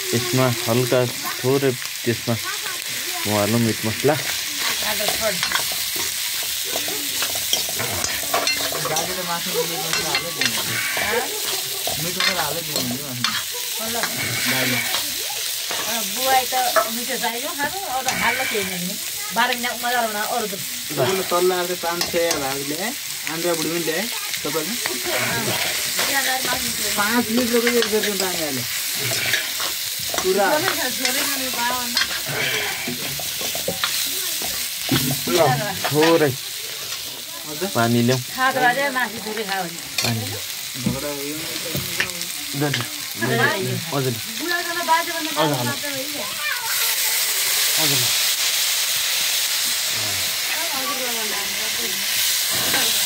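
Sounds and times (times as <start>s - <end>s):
chicken sizzling in hot oil: 0.0s - 53.0s
metal spatula scraping a pan: 3.4s - 20.0s, 24.8s - 37.3s, 52.4s - 53.0s.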